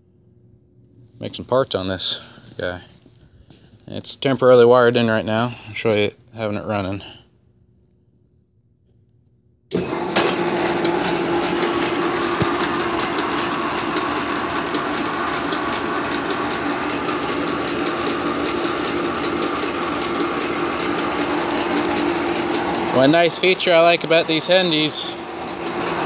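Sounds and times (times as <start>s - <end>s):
lathe running: 9.7s - 26.0s.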